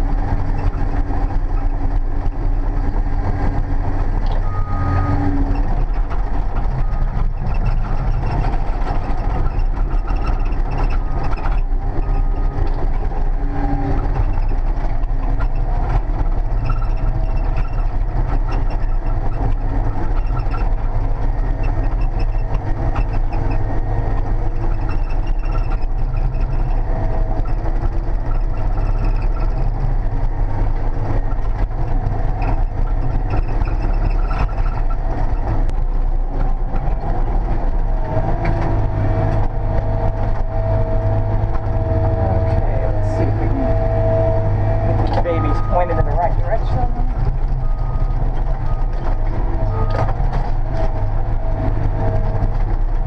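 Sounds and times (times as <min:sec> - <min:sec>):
diesel engine droning: 0:00.0 - 0:53.0.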